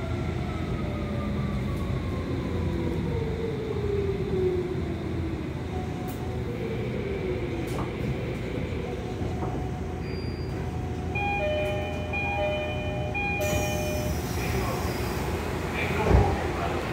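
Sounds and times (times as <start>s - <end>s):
train inverter whine: 0.0s - 16.9s
train rumbling: 0.0s - 16.9s
beeping chime: 11.2s - 14.2s.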